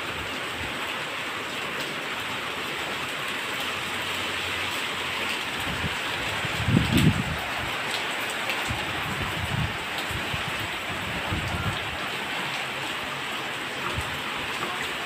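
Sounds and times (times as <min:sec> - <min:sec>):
heavy rain falling: 0:00.0 - 0:15.0
wind gusts on microphone: 0:05.5 - 0:08.0, 0:08.6 - 0:12.2.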